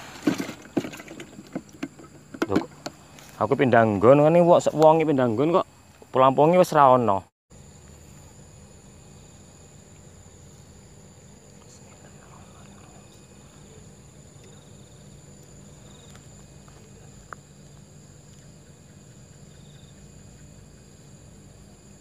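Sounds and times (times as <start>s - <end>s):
crickets and insects calling: 0.0s - 22.0s
low steady rumble: 7.2s - 22.0s.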